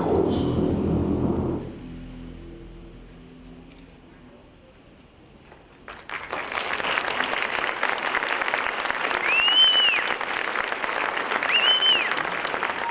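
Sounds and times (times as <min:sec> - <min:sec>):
audience applause: 0:05.4 - 0:12.9
loud whistle: 0:09.1 - 0:10.2, 0:11.3 - 0:12.9.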